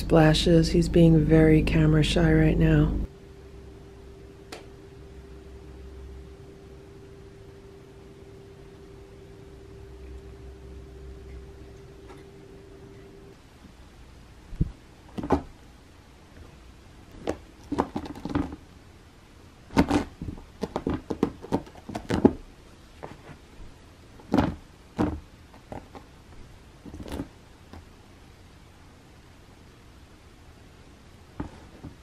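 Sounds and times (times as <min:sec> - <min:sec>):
cat claws scratching carpet: 0:17.1 - 0:18.6, 0:19.7 - 0:23.4.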